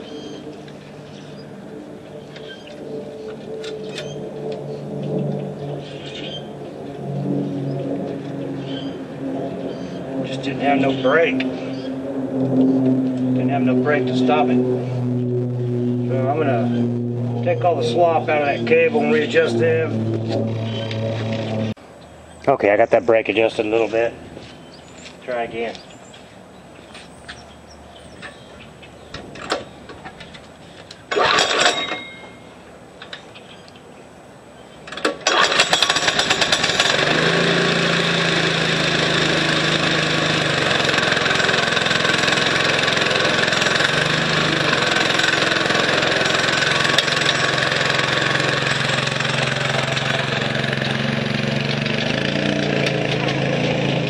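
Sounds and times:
scooter engine pull-start: 0:29.3 - 0:32.2, 0:34.9 - 0:53.8
scooter engine fast idle: 0:35.3 - 0:53.4.

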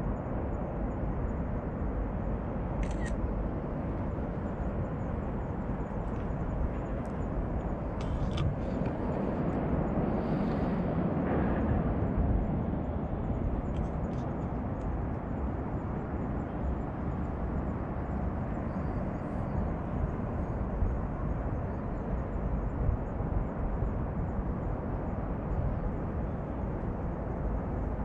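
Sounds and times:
low rumbling outdoor noise: 0:00.0 - 0:28.0.

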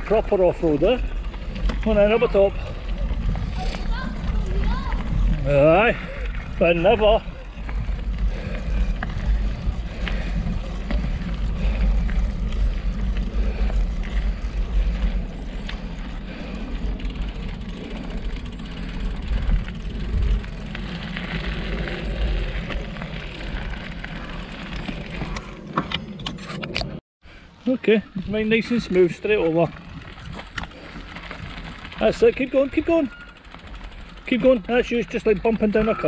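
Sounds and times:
bike tyres rattling on gravel: 0:00.0 - 0:26.1, 0:27.8 - 0:36.0
heavy low rumble: 0:07.2 - 0:26.2.

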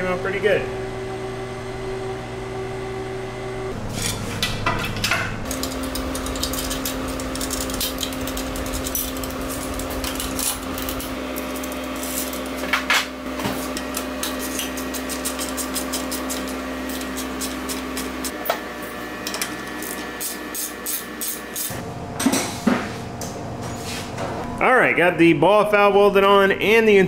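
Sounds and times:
steady mechanical hum: 0:00.0 - 0:27.0.

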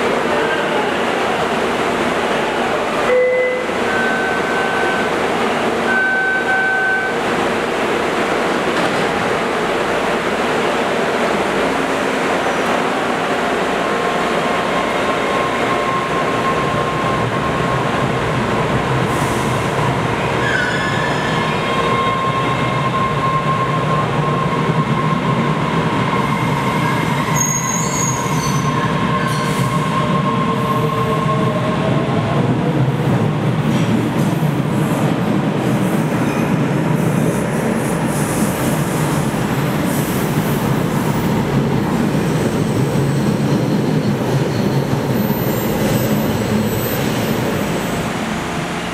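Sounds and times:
subway train running: 0:00.0 - 0:48.9
train wheels squealing: 0:14.7 - 0:17.7, 0:20.4 - 0:31.7, 0:42.0 - 0:48.2.

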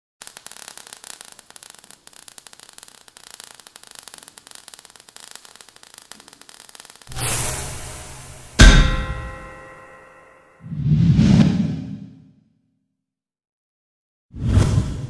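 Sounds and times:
sparks crackling: 0:00.2 - 0:10.5.

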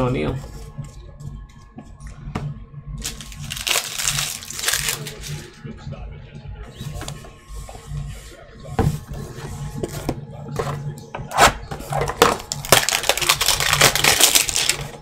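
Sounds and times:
cardboard and plastic rustling: 0:03.0 - 0:05.6, 0:11.8 - 0:15.0.

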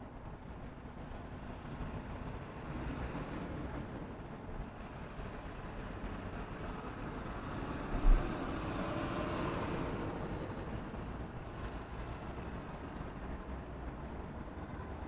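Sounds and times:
street traffic: 0:00.0 - 0:15.0
vehicle passing by: 0:07.2 - 0:10.8.

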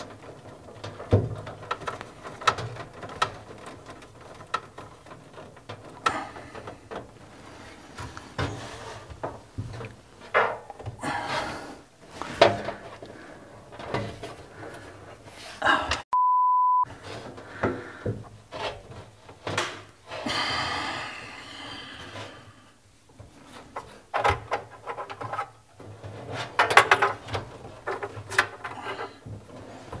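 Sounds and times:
objects knocking and rattling: 0:00.0 - 0:15.5, 0:17.0 - 0:20.2, 0:22.0 - 0:30.0
censor bleep: 0:16.1 - 0:16.9.

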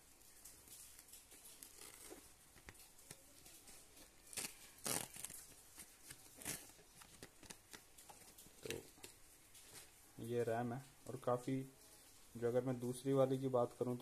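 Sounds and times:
blister packaging crinkling: 0:00.0 - 0:10.4
plastic packaging crackles: 0:00.0 - 0:14.0.

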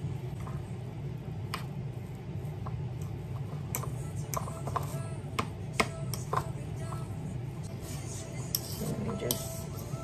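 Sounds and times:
fork clinking and scraping bowl: 0:08.2 - 0:10.0.

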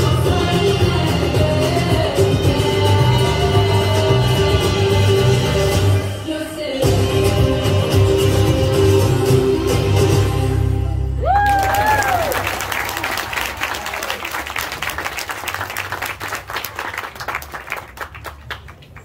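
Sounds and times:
music: 0:00.0 - 0:11.7
high whooping cheer: 0:11.2 - 0:14.5
audience applauding: 0:11.3 - 0:19.0.

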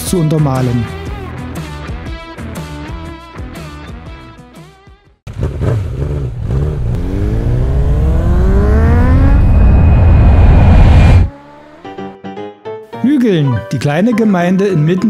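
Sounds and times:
wind and road noise: 0:05.3 - 0:11.3
motorcycle engine accelerating: 0:05.3 - 0:12.2.

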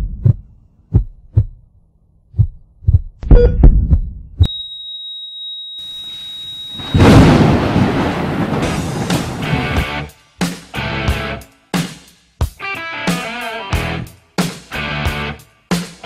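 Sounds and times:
heartbeat thumps: 0:00.0 - 0:01.7, 0:02.3 - 0:04.5
flatline beep: 0:04.4 - 0:07.4
loud rushing noise: 0:06.8 - 0:10.0.

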